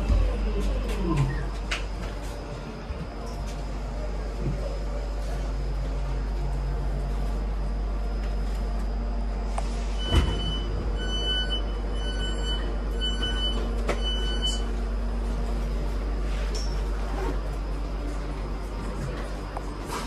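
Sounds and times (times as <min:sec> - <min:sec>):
train low hum: 0:00.0 - 0:20.0
door warning beeps: 0:09.9 - 0:14.7.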